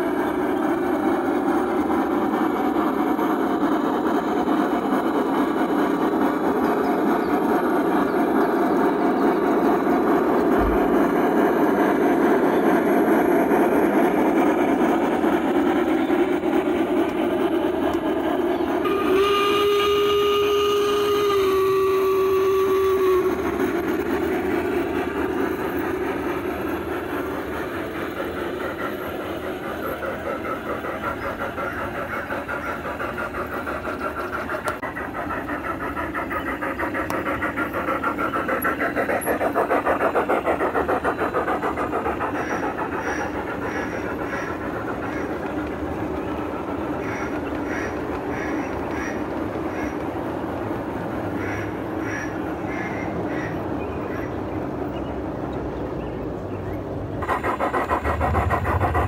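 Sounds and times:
model steam locomotive running: 0.0s - 59.0s
locomotive whistle: 18.6s - 24.1s.

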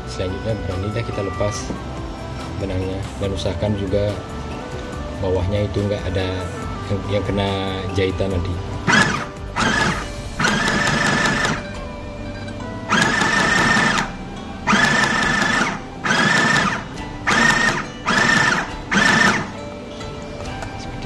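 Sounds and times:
sewing machine motor whining: 8.8s - 19.6s.

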